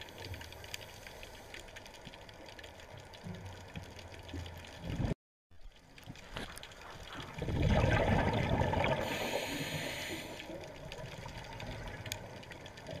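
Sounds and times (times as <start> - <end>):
muffled underwater rushing: 6.2 - 13.0.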